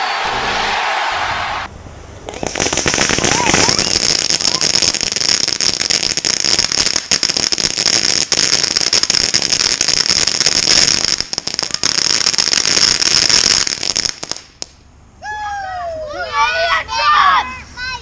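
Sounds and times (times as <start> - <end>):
firework fountain hissing and crackling: 2.1 - 14.8
firework pops: 2.2 - 5.1.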